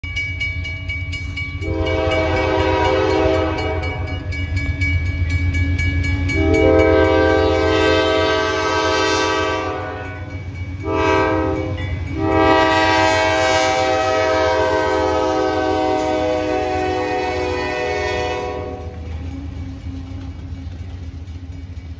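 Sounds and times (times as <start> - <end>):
locomotive air horn blasts: 1.6 - 4.2, 6.4 - 19.0.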